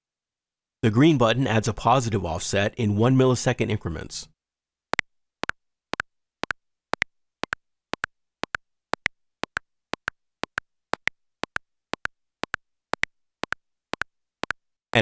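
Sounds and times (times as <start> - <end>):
metronome clicks: 5.4 - 14.6.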